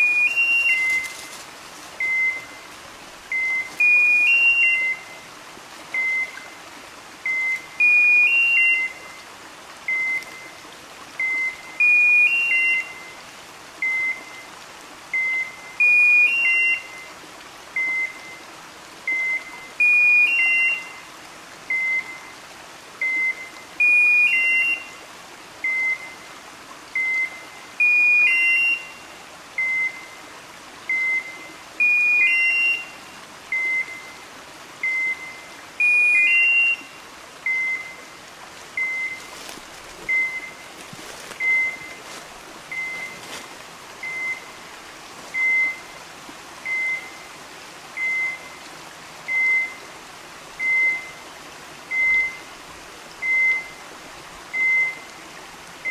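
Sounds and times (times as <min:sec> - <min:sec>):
high electronic beeps: 0:40.1 - 0:40.6, 0:41.4 - 0:42.0, 0:42.7 - 0:43.2.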